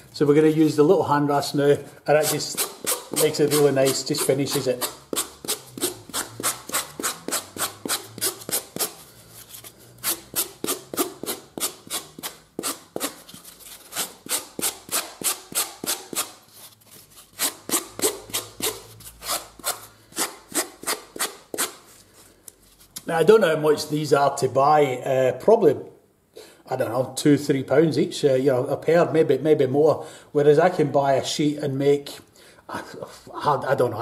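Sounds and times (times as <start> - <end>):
hand rasp scraping: 2.2 - 21.8.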